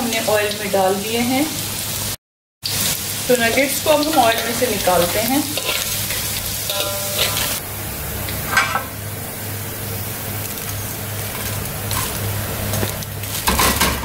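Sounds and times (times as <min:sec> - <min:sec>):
hot oil sizzling in a wok: 0:00.0 - 0:14.0
metal skimmer scraping a wok: 0:03.5 - 0:07.6, 0:08.2 - 0:09.0, 0:10.6 - 0:13.8
steady low hum: 0:04.2 - 0:13.2.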